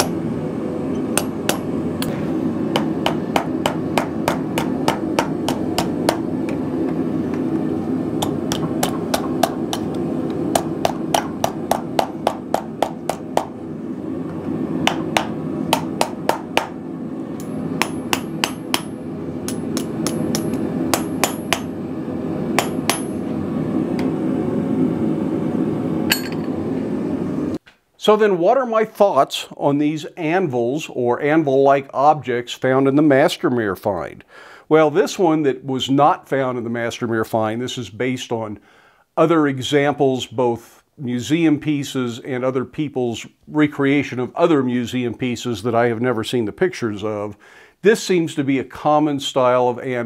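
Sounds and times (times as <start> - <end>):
hammer striking steel on anvil: 0.0 - 0.2, 0.9 - 6.6, 8.2 - 13.6, 14.8 - 16.8, 17.4 - 21.7, 22.6 - 23.2, 26.1 - 26.5
steady hum: 0.0 - 37.1.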